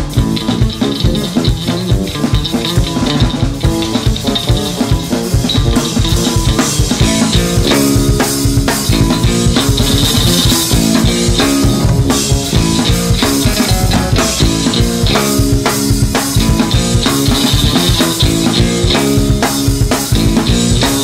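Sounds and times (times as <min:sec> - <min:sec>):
drum beat with cymbals: 0:00.0 - 0:21.0
sustained guitar and bass: 0:00.0 - 0:21.0.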